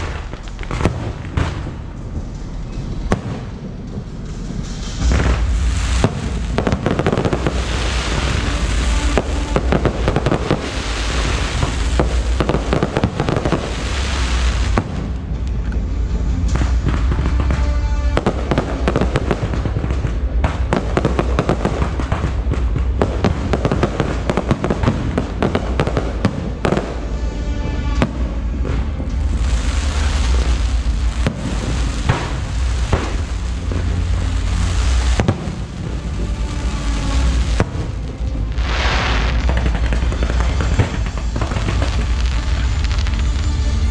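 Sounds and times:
deep rumble: 0.0 - 43.9
fireworks bangs and crackle: 0.0 - 43.9.

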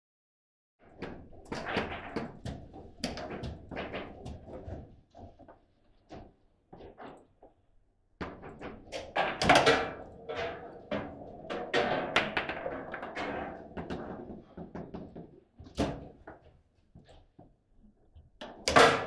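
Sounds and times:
foosball ball and rods knocking: 1.0 - 4.6, 8.2 - 16.4, 18.4 - 19.0.

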